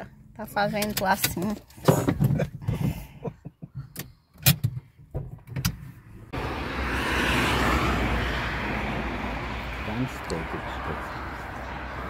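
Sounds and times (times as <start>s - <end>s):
sharp clicks and knocks in car: 0.7s - 3.0s, 3.6s - 5.9s
road traffic rushing: 5.9s - 12.0s.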